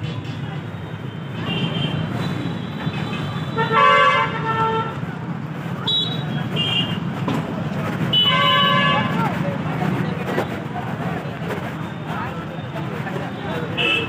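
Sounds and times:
low rumble of engines: 0.0s - 14.0s
vehicle horns honking: 1.2s - 5.0s, 5.8s - 7.1s, 8.1s - 9.3s, 13.6s - 14.0s.

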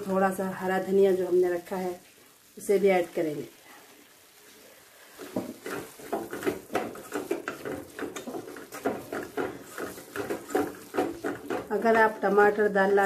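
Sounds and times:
wooden spatula scraping metal pan: 5.1s - 13.0s.

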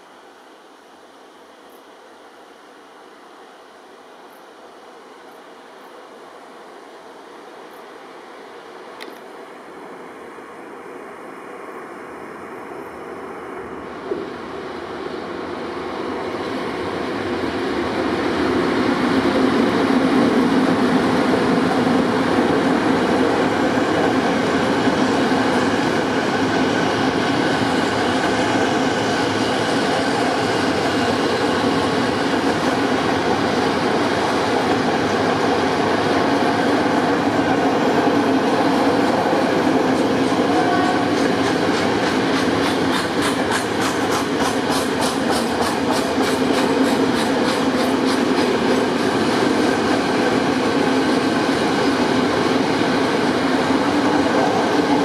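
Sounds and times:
train wheels rumbling on rails: 13.9s - 55.0s.

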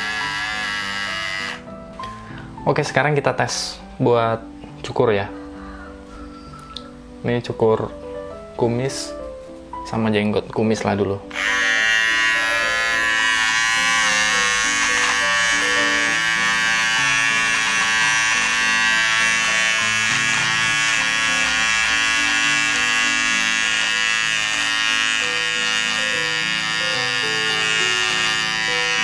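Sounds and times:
hair clipper buzzing: 0.0s - 2.2s, 11.3s - 29.0s.

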